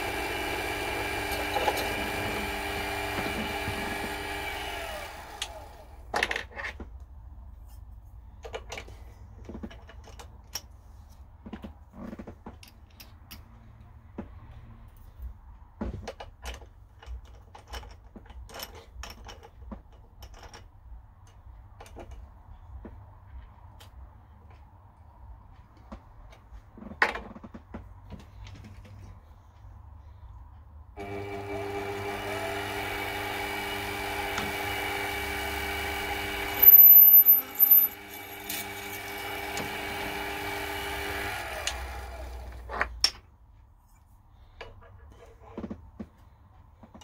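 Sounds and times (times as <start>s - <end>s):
mill spindle motor whining: 0.0s - 6.0s, 31.0s - 42.6s.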